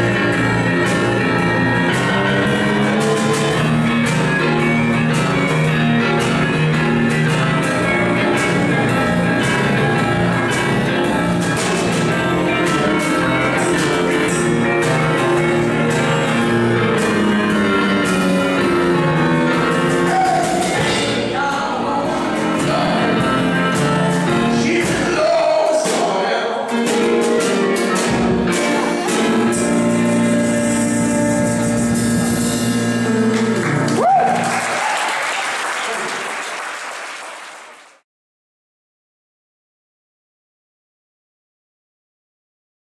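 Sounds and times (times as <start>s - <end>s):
electric guitar: 0.0s - 21.3s
electric keyboard: 0.0s - 25.9s, 26.6s - 34.7s
drum kit: 0.0s - 35.0s.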